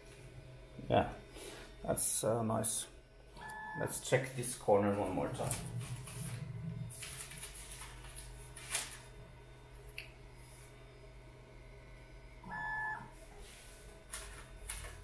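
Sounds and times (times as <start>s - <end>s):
printer fans humming: 0.0s - 15.0s
stepper motor whine: 5.1s - 7.4s.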